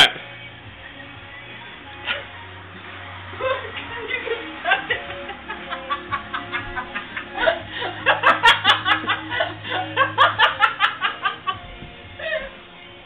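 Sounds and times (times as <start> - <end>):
background music: 0.0 - 13.0
hearty laughter: 3.4 - 12.6.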